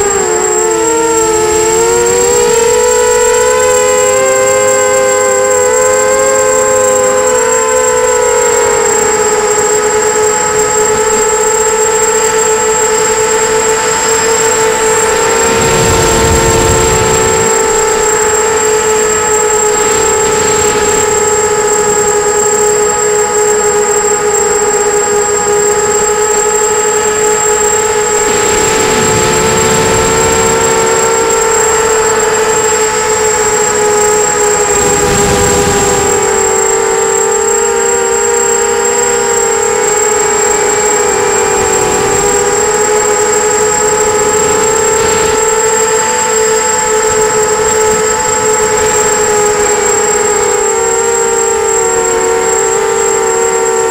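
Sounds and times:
quadcopter propellers whining: 0.0 - 53.9
rushes of noise: 14.4 - 22.6, 27.0 - 37.8.

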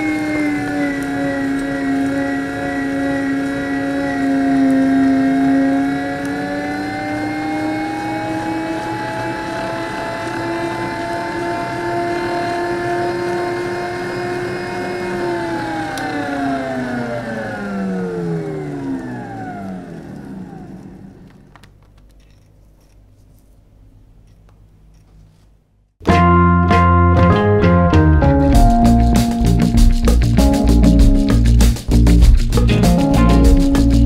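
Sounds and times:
meat grinder motor whining: 0.0 - 21.5.

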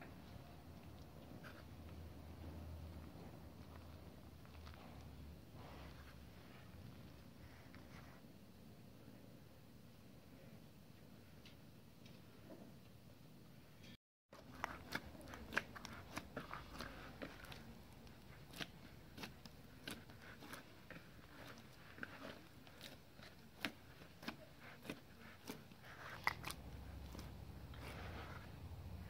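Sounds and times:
hands kneading dough in plastic bowl: 14.4 - 29.0.

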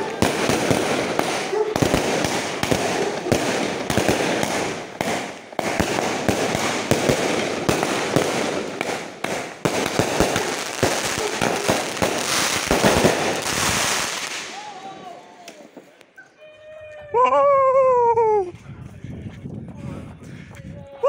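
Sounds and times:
fireworks launch bangs: 0.0 - 14.7.

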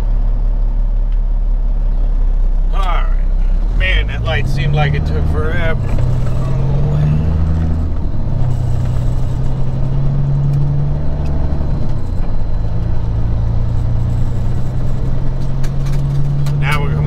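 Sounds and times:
truck diesel engine accelerating: 0.0 - 17.0.

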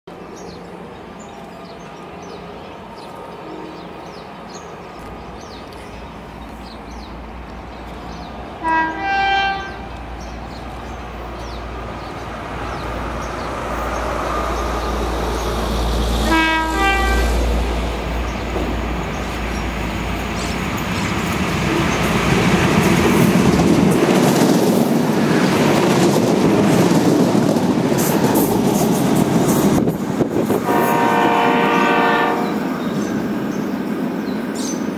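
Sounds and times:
diesel locomotive engine and wheels: 0.1 - 34.9
railcar passing with rumble: 0.1 - 34.9
train horn blasts: 8.6 - 10.0, 16.2 - 17.4, 30.5 - 32.7.

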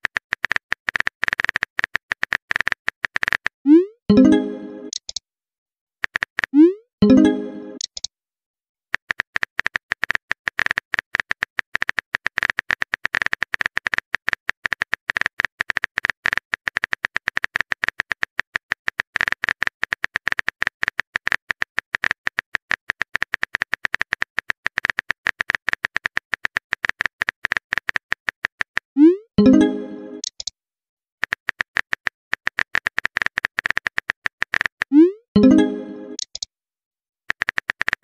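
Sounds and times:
phone keyboard typing clicks: 0.0 - 5.2, 6.0 - 8.1, 29.4 - 30.5, 31.2 - 36.5, 37.3 - 38.0.

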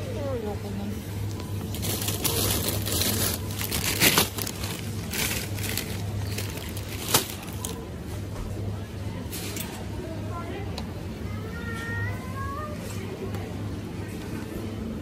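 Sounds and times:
steady low hum: 0.0 - 9.2
plastic bags crinkling: 1.2 - 7.8.

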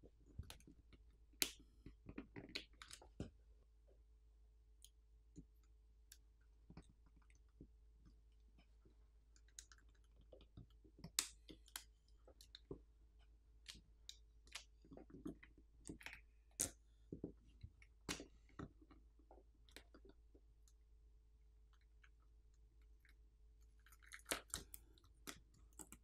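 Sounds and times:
faint clicks and crackles: 4.8 - 20.8, 21.7 - 26.0.

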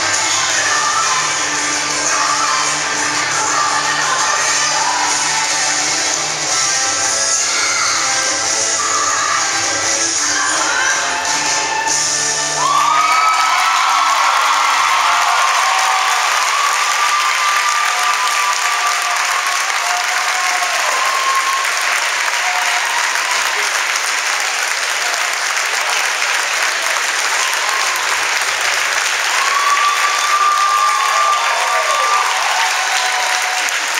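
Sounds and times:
drawn-out cheers: 12.6 - 23.8, 27.2 - 33.9
crowd applauding: 12.6 - 33.9.

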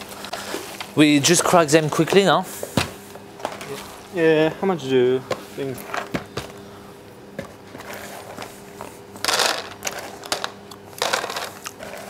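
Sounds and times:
pistachio shells cracking: 9.2 - 11.8
nuts rattling into plastic tub: 9.2 - 12.0.

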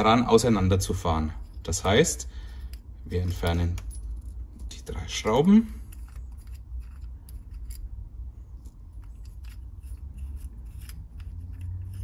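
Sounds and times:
light metallic clicks and scrapes: 1.3 - 12.0.

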